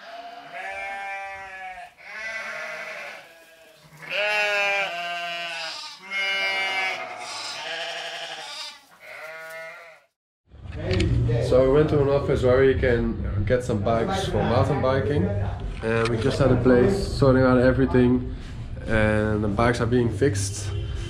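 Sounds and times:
sheep bleating: 0.0s - 10.1s.

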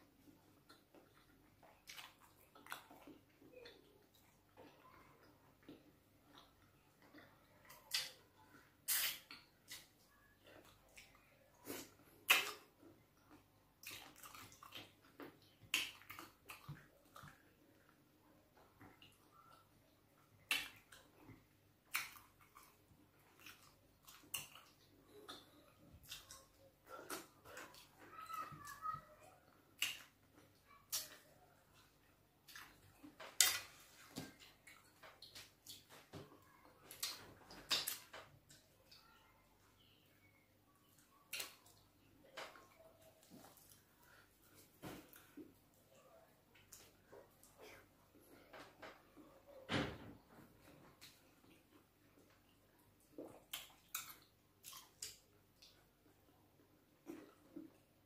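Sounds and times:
chewing: 0.2s - 28.6s, 29.5s - 39.1s, 40.8s - 49.6s, 50.6s - 58.0s
wet eating mouth smacks: 8.8s - 9.9s, 53.1s - 55.8s.

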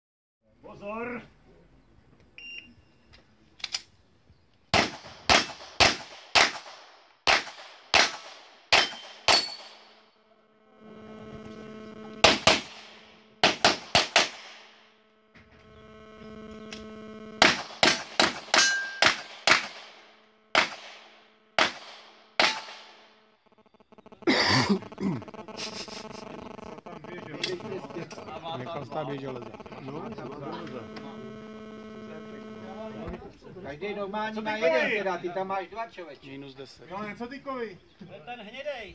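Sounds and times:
pistol shots: 4.7s - 10.0s, 12.2s - 14.8s, 17.4s - 23.1s
steady hum: 8.2s - 33.4s
steel targets ringing: 8.8s - 10.0s, 18.5s - 19.7s.

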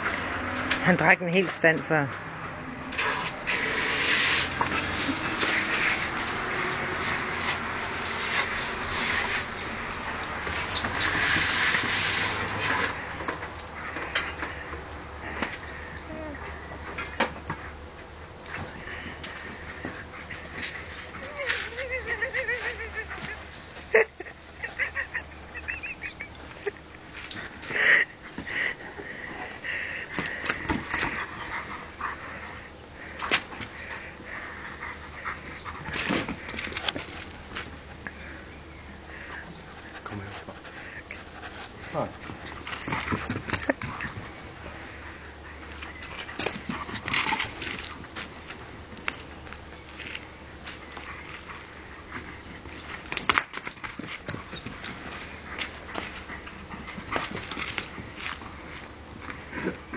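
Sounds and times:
hissing burst: 2.9s - 6.1s.

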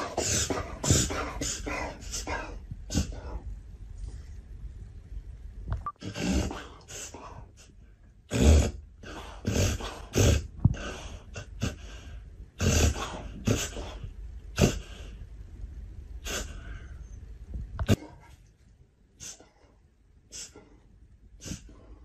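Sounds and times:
dog snorting and snuffling: 0.0s - 3.2s.

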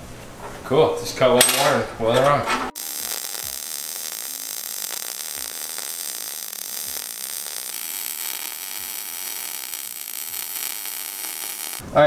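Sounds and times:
welder arc crackling and hissing: 2.7s - 12.0s.

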